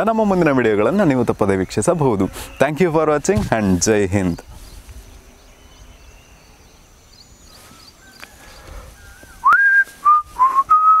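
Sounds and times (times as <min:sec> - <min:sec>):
person whistling: 0:09.4 - 0:11.0.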